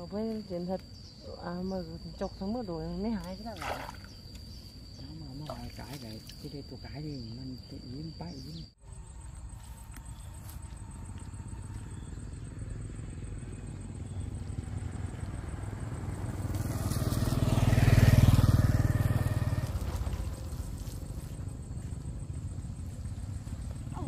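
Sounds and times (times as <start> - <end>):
motorbike passing by: 11.2 - 24.0.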